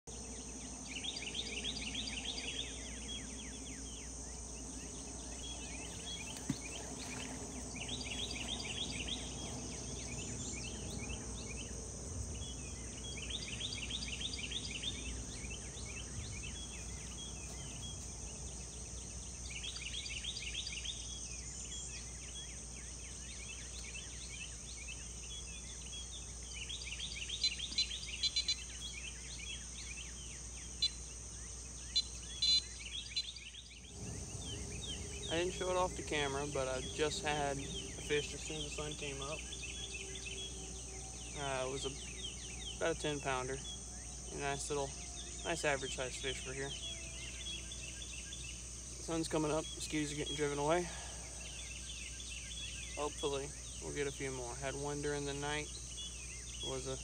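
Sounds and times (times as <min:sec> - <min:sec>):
insects buzzing: 0:00.0 - 0:57.0
insect trill: 0:00.1 - 0:57.0
low steady rumble: 0:33.7 - 0:49.9.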